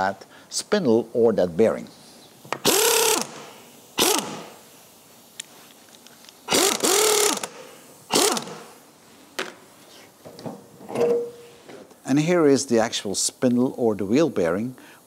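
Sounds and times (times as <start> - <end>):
impact wrench whine and rattle: 2.5 - 4.6, 6.5 - 8.8.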